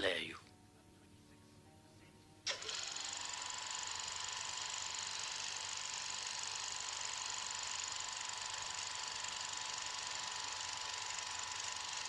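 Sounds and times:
film soundtrack hiss: 0.0 - 5.8.

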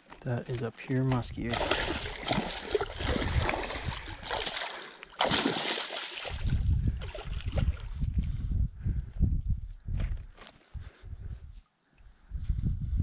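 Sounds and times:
fish thrashing and splashing: 1.5 - 7.9.

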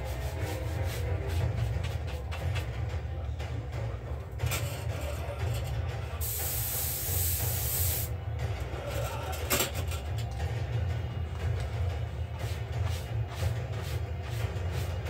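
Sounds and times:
spray hissing: 6.2 - 8.1.

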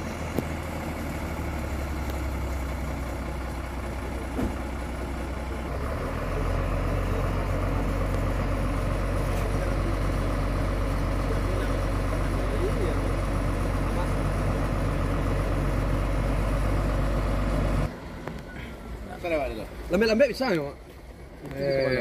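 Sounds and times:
diesel truck engine idling: 0.0 - 22.0
brief knock: 4.3 - 4.6.

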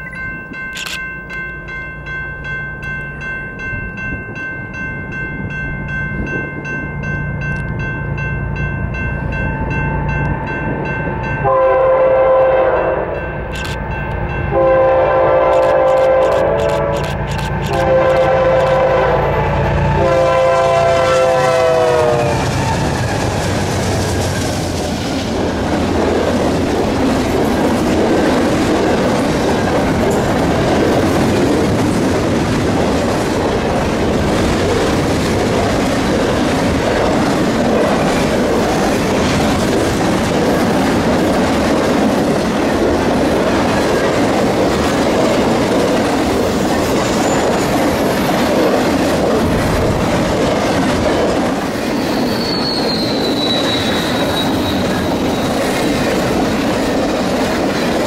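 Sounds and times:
freight train passing on rails: 0.0 - 58.0
locomotive horn: 11.4 - 13.3, 14.5 - 23.2.

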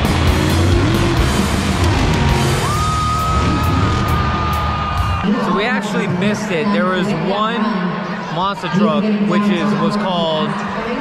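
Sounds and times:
heavy rock music: 0.0 - 6.5.

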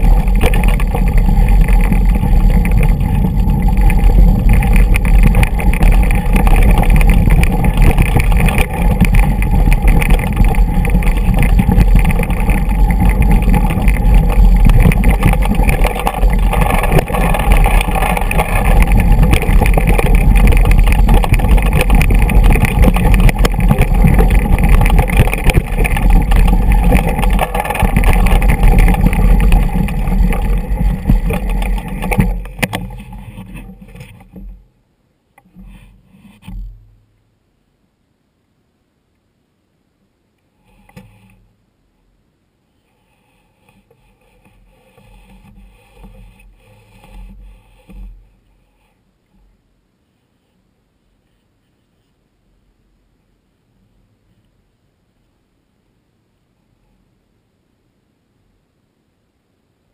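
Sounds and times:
bike rattling on rocky trail: 0.0 - 34.6
wind rumbling on microphone: 0.0 - 34.7.

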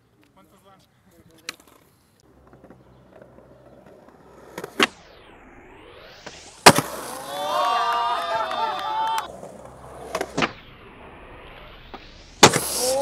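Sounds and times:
skateboard wheels rolling: 1.2 - 13.0
skateboard tail popping: 1.4 - 5.0, 6.2 - 7.3, 7.9 - 10.7, 11.6 - 13.0
skateboard landing slam: 4.6 - 5.0, 6.6 - 7.3, 10.0 - 10.6, 11.9 - 13.0.

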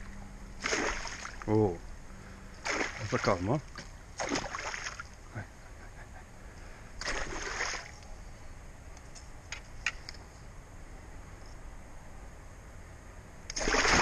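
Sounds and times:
water splashing and sloshing: 0.0 - 1.6, 2.6 - 5.3, 7.0 - 8.0, 13.5 - 14.0.

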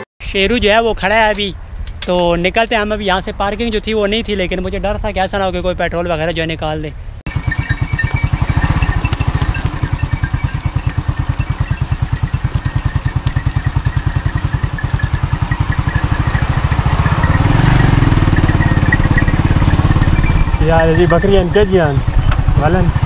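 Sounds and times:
small motorcycle engine running: 7.3 - 23.0.

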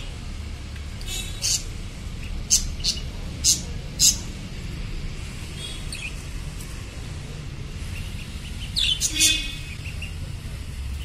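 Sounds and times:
low background hum: 0.0 - 11.0
budgerigars chirping: 1.4 - 4.3, 7.9 - 10.2.

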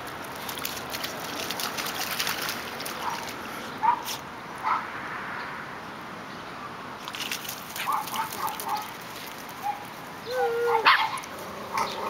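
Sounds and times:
splashing and footfalls: 0.0 - 4.2, 7.0 - 9.7
dog barking: 3.8 - 4.8, 7.8 - 8.9, 10.6 - 12.0
dog whining: 10.2 - 12.0.

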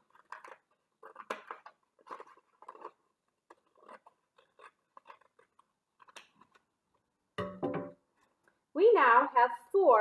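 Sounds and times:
scissors snipping paper: 0.0 - 6.7.

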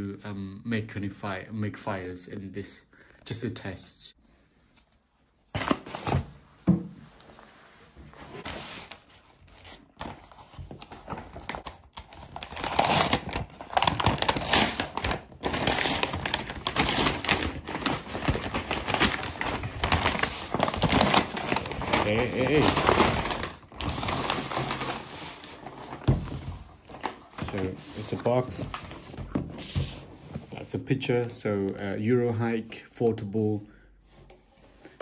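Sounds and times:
paper bag tearing and crinkling: 8.4 - 30.2.

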